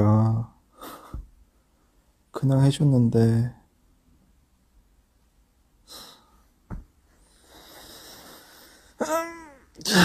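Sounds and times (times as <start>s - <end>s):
small knock: 6.7s - 6.9s.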